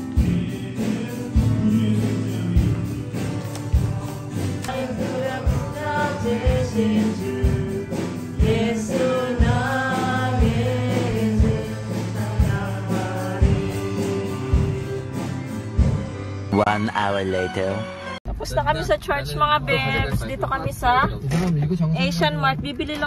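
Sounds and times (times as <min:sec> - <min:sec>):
man singing into microphone: 0:00.0 - 0:15.1
drum beat: 0:00.0 - 0:16.1, 0:19.1 - 0:23.0
live worship band playing: 0:00.0 - 0:17.9.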